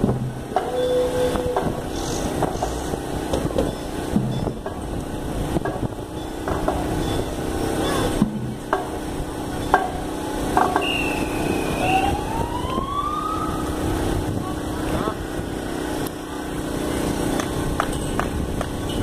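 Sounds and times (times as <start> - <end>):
street noise: 0.0 - 19.0
siren chirps and wail: 10.8 - 13.9.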